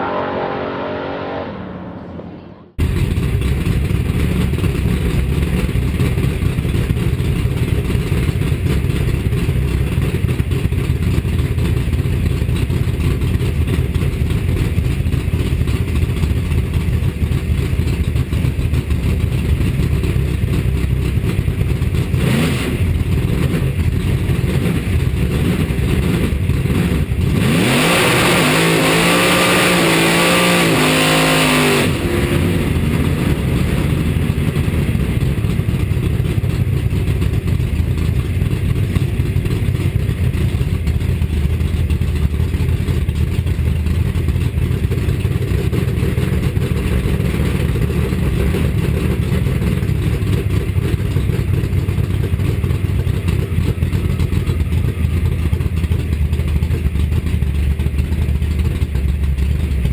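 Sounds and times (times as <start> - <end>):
loud drag car engine: 0.0 - 59.9
engine revving: 21.6 - 36.6.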